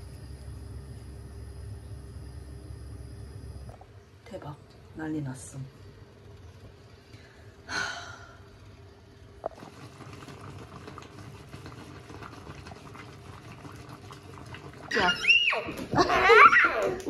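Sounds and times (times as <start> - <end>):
pot of food bubbling: 9.3 - 16.0.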